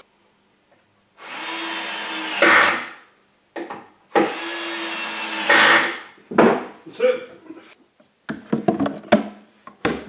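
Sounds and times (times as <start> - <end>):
cordless drill driving screws: 1.2 - 2.8, 4.2 - 6.0.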